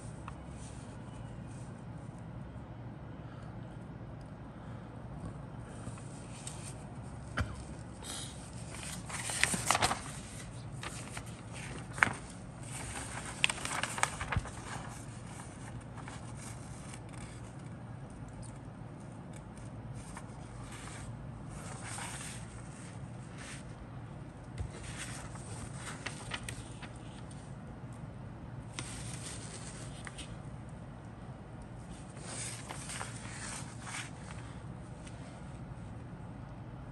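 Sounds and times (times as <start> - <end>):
steady low hum: 0.0 - 36.9
paper rustling and crinkling: 5.8 - 23.8, 24.5 - 27.6, 28.7 - 30.5, 31.8 - 35.4.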